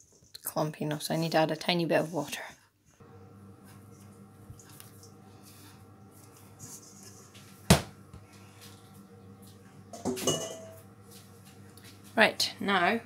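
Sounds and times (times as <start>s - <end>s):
metal bowl clatter and ring: 9.9s - 10.8s.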